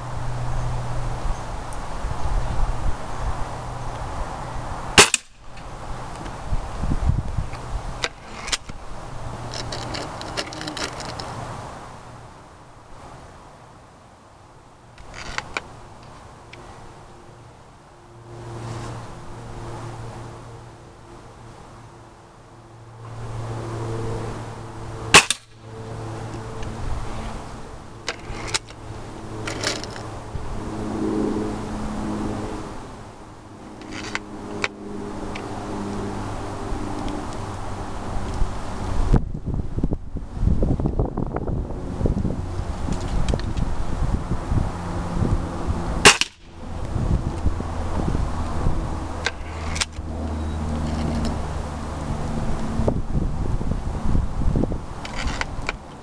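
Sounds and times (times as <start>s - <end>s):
air rifle shot: 25.1s - 25.5s, 46.0s - 46.4s.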